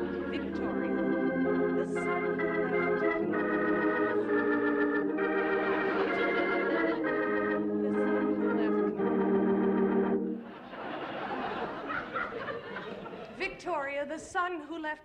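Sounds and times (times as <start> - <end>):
dramatic organ chords: 0.0 - 12.7.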